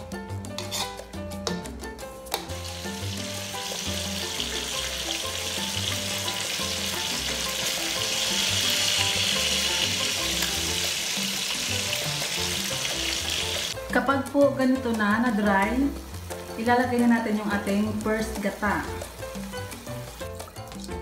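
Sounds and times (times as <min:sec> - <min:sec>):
background music: 0:00.0 - 0:21.0
food sizzling in a wok: 0:00.6 - 0:01.1, 0:02.3 - 0:20.9.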